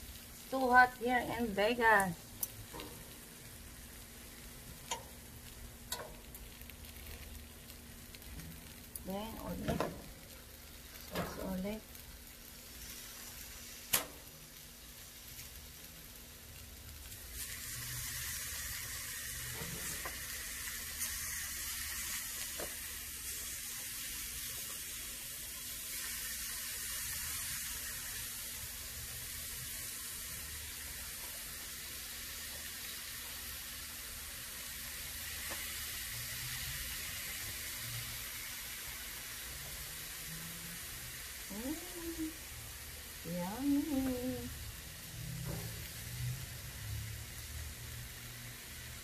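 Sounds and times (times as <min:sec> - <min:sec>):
meat sizzling on a grill: 0:00.0 - 0:49.0.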